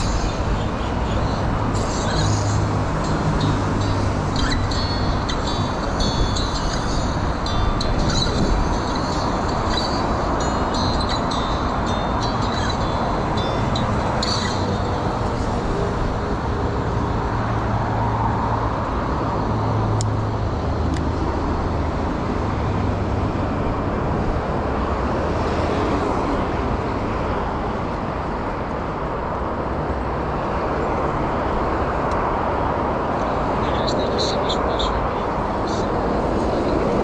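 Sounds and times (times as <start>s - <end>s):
road traffic rushing: 0.0s - 37.0s
wind on microphone: 2.6s - 10.2s.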